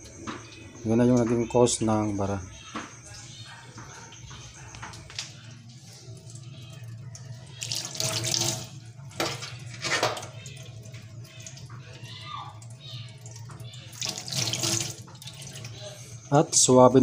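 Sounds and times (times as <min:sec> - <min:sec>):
tap water pouring into sink: 0:03.8 - 0:15.9.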